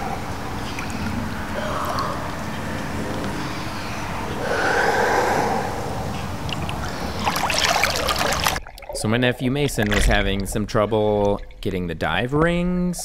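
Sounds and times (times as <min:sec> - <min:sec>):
water splashing: 0:00.0 - 0:12.5
slow deep breaths through hands: 0:03.2 - 0:07.4.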